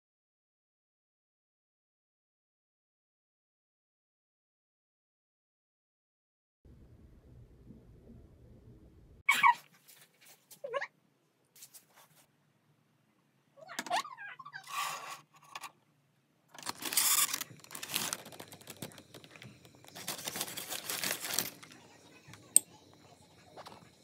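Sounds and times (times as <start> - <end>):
paper bags rustling and crinkling: 16.6 - 21.8.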